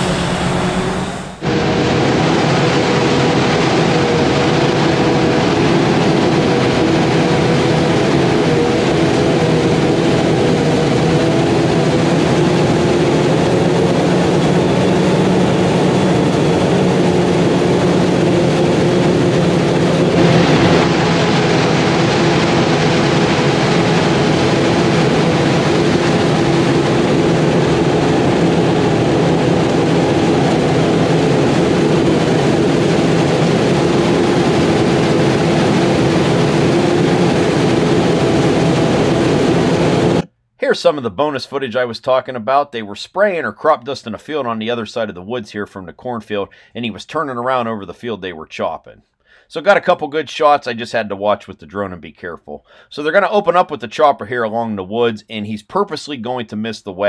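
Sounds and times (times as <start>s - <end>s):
forage harvester machine hum: 0.0s - 40.3s.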